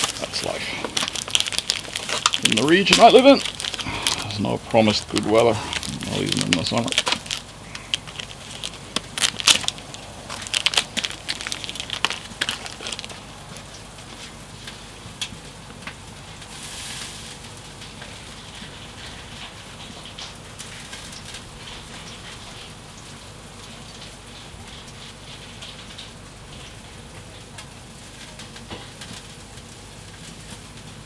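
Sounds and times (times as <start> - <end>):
plastic pack crinkling: 0.0 - 15.0
food crackling on grill: 0.0 - 31.0
gas grill hissing: 0.0 - 31.0.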